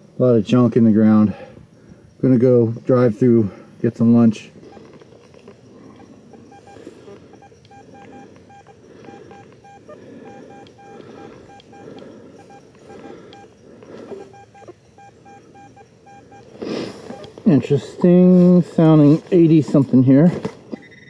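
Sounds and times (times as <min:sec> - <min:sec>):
metal detector beeps: 0:03.9 - 0:21.0
footsteps in grass: 0:16.5 - 0:20.8.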